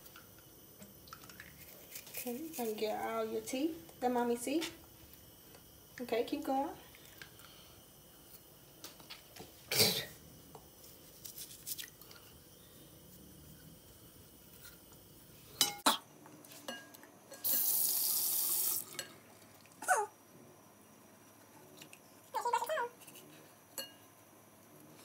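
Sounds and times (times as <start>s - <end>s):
tap water running into basin: 17.4s - 19.8s.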